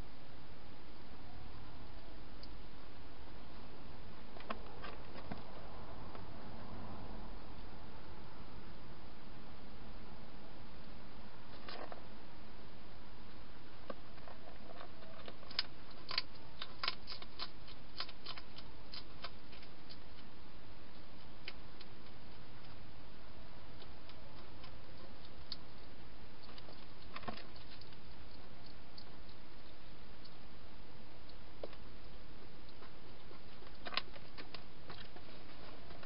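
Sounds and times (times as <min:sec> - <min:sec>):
background hiss: 0:00.0 - 0:36.0
hedgehog crunching dry food: 0:14.1 - 0:22.9, 0:23.7 - 0:30.4, 0:31.2 - 0:36.0.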